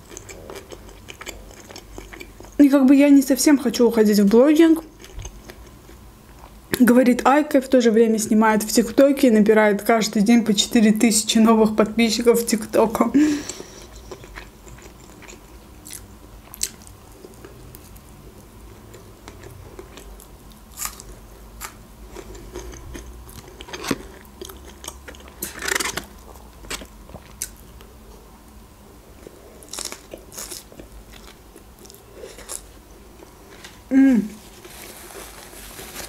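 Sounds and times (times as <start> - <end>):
food crunching: 0.0 - 2.6, 4.8 - 6.6, 13.4 - 18.0, 18.8 - 27.9, 29.2 - 33.8
person biting and chewing: 20.7 - 27.6, 29.6 - 32.7.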